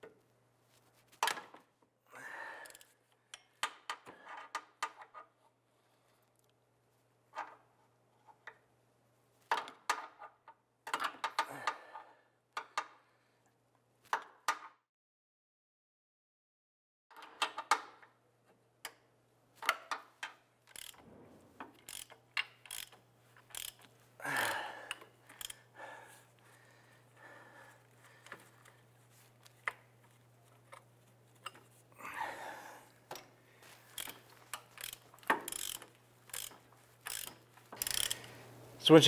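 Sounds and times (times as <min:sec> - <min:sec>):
ratchet pawl clicking: 0:20.7 - 0:21.0, 0:21.8 - 0:25.7, 0:33.9 - 0:38.4.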